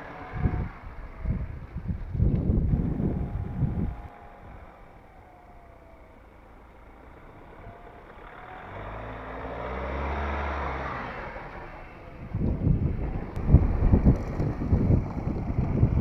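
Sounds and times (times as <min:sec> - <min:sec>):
wind buffeting microphone: 0:00.0 - 0:06.8, 0:10.7 - 0:16.0
pickup truck driving past: 0:00.0 - 0:16.0.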